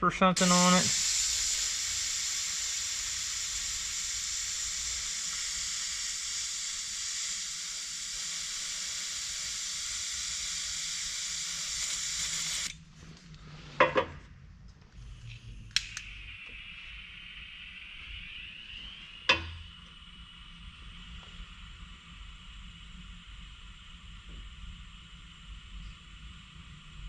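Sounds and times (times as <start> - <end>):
butane gas hissing: 0.2 - 12.8, 15.1 - 27.0
sharp click: 15.7 - 16.1.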